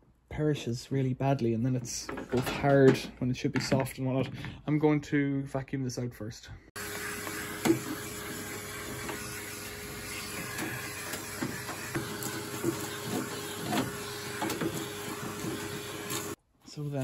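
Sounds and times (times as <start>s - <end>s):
vacuum cleaner running: 6.8s - 16.4s.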